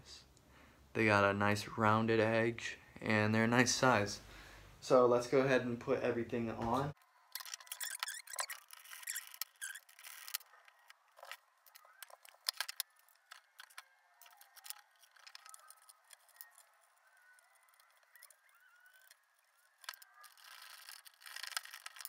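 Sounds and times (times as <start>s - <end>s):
faint wavering squeaks: 7.0s - 22.0s.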